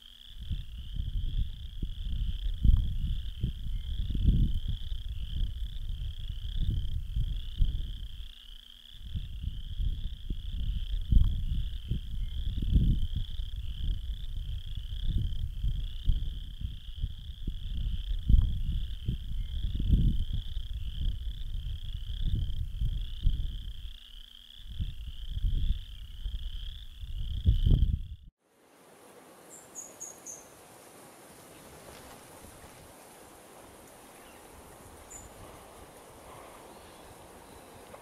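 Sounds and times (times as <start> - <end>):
frogs trilling: 0.0 - 27.8
wind rumble on microphone: 0.3 - 24.0, 24.6 - 28.3, 30.9 - 38.0
faint hiss: 28.4 - 38.0
high bird chirps: 29.5 - 30.5.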